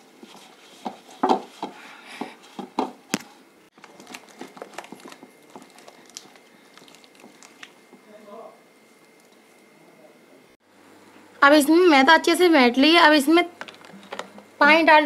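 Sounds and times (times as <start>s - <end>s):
hand beating dough in steel bowl: 3.8s - 8.1s.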